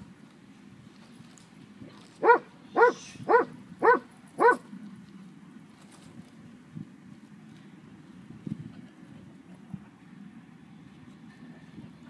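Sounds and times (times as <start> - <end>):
dog barking sharply: 2.2 - 4.6.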